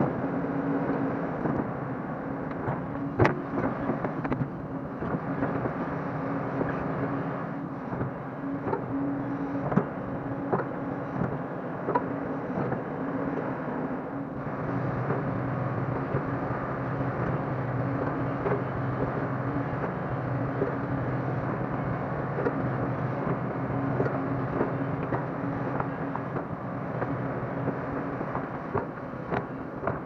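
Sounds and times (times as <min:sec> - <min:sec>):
excavator diesel engine running: 0:00.0 - 0:30.0
excavator digging soil: 0:14.4 - 0:30.0.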